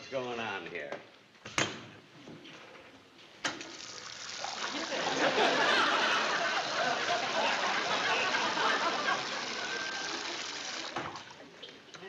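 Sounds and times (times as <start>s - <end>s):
water running from faucet into sink: 3.6s - 5.0s, 6.6s - 11.4s.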